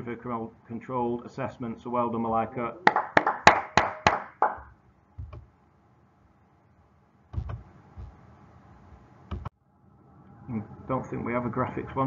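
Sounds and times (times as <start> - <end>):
hand claps: 2.8 - 4.7
soft thumps: 7.3 - 8.2.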